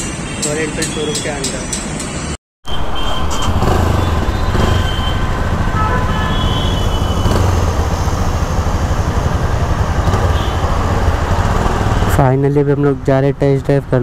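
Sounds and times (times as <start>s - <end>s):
motorcycle engine idling: 3.2s - 12.1s.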